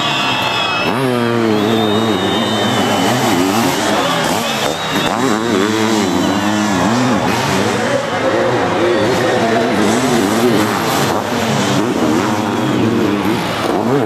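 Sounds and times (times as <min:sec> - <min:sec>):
motorcycle engines racing: 0:00.0 - 0:14.0
steady engine drone: 0:00.0 - 0:14.0.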